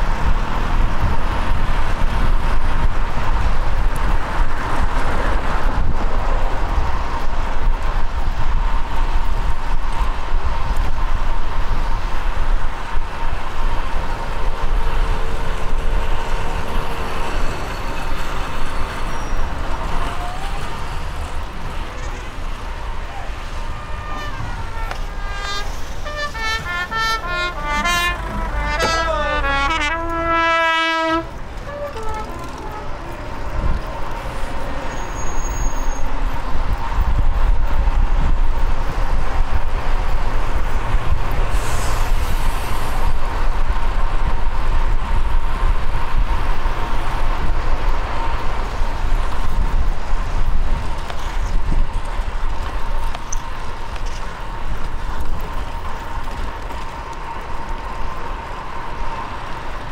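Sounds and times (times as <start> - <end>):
rushing wind: 0.0 - 59.9
traffic noise: 0.0 - 59.9
horn playing a short tune: 23.7 - 33.2.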